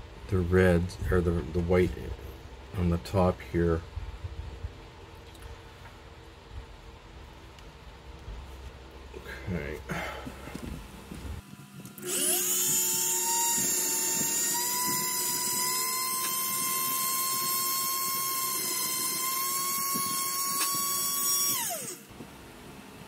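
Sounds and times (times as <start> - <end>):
rotary tool whining: 11.4 - 22.1.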